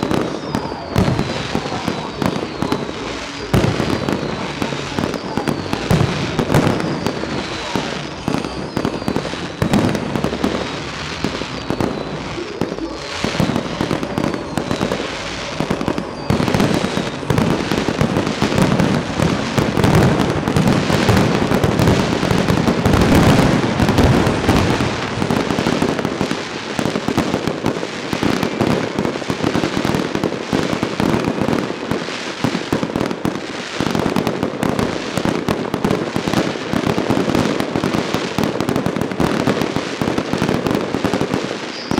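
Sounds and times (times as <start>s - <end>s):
fireworks bangs and crackle: 0.0s - 41.9s.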